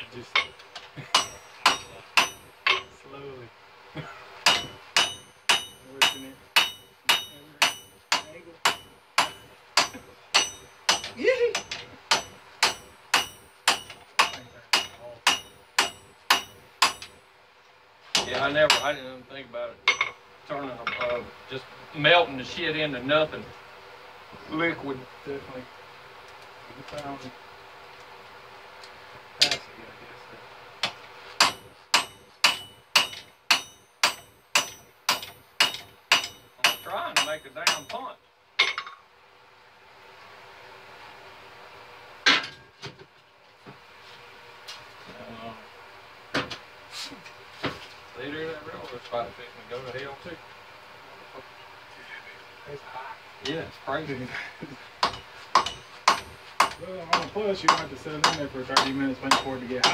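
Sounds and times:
hammer striking on anvil: 0.3s - 2.9s, 4.4s - 17.2s, 18.2s - 19.1s, 30.8s - 39.0s, 55.0s - 59.9s.

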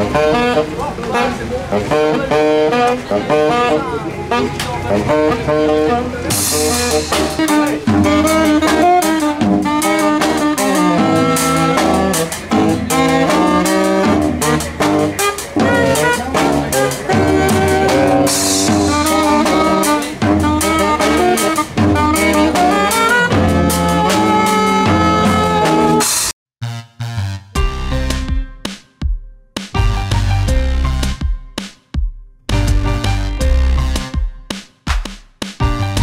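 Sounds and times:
saxophones playing melody: 0.0s - 28.6s
sousaphone bass line: 1.7s - 28.5s, 29.8s - 31.2s, 32.5s - 34.2s, 35.6s - 36.0s
drum kit beat: 4.8s - 26.3s, 27.2s - 36.0s.

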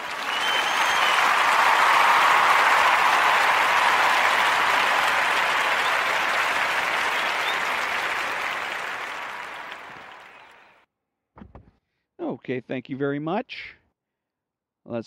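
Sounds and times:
audience applause: 0.0s - 10.8s.

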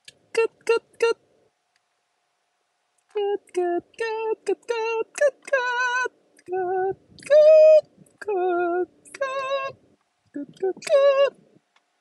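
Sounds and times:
person singing high notes: 3.1s - 9.8s.

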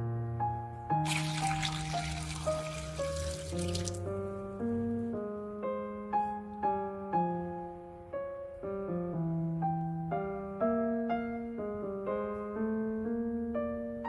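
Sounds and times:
piano music: 0.0s - 14.0s
water pouring into pan: 1.0s - 4.1s.

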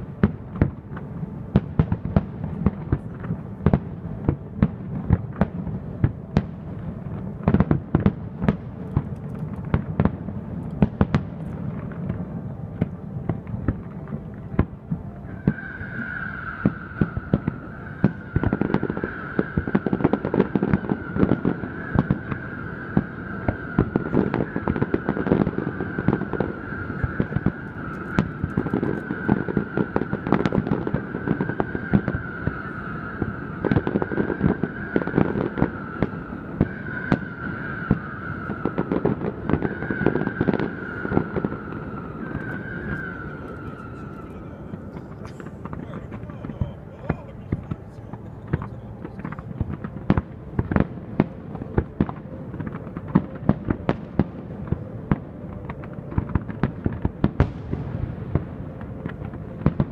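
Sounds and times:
distant fireworks bangs and crackling: 0.0s - 59.9s
steady high tone: 11.5s - 19.8s, 40.5s - 53.4s.

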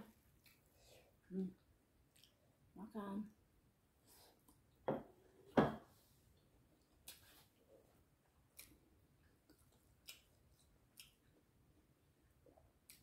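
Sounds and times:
quiet chewing: 0.1s - 2.6s, 6.2s - 13.0s.

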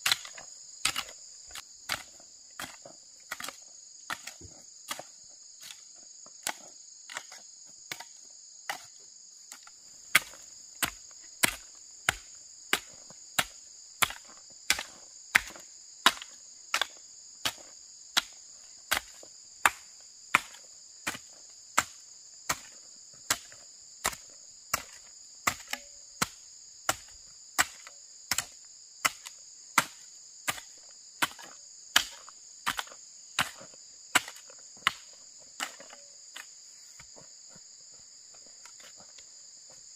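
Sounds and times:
hand tool striking: 0.0s - 5.8s, 9.5s - 22.7s
insect chorus: 0.0s - 39.9s.

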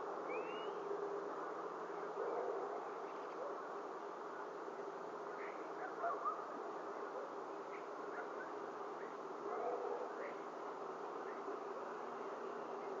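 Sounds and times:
microphone background hiss: 0.0s - 13.0s
faint bird chirps: 0.3s - 0.8s.

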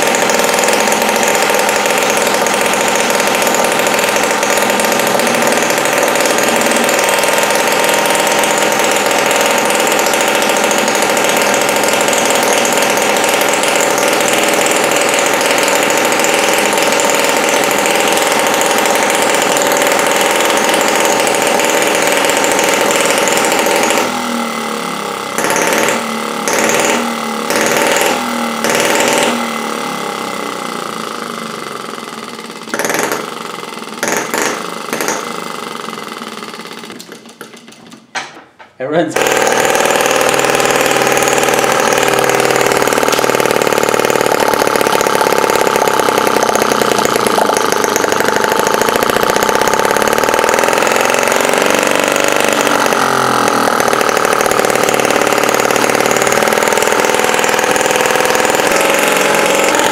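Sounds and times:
model engine running: 0.0s - 37.6s, 39.2s - 59.9s.

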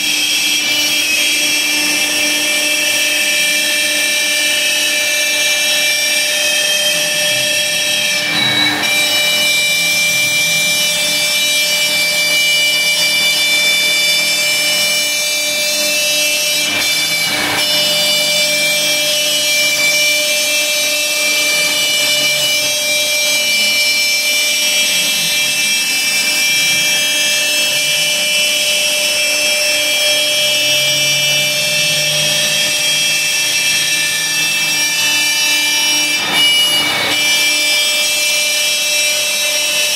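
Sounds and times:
cnc router spindle whining: 0.0s - 39.9s.

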